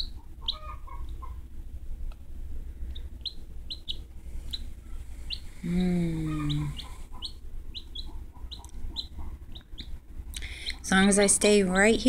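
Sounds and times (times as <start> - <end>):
chick peeping: 0.0 - 1.5, 2.8 - 11.0
low hum: 0.0 - 12.0.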